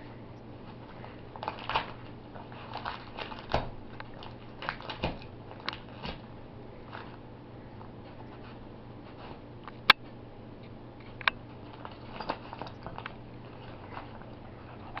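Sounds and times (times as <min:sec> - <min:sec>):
paper crinkling and crackling: 0:00.6 - 0:07.2, 0:11.1 - 0:15.0.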